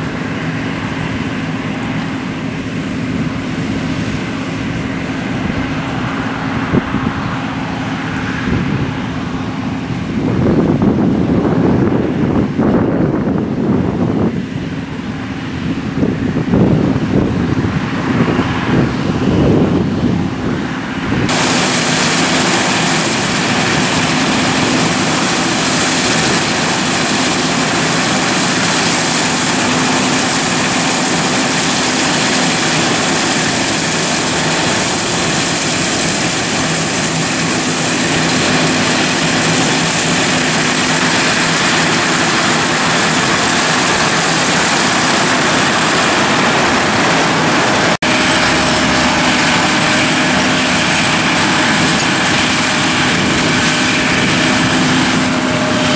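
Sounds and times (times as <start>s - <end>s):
combine harvester engine drone: 0.0s - 55.9s
machinery hiss: 21.3s - 55.9s.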